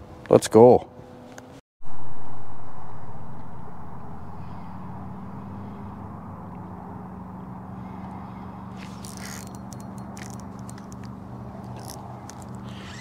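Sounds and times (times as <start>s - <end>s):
electric motor hum: 2.7s - 13.0s
fishing reel clicking: 8.9s - 13.0s.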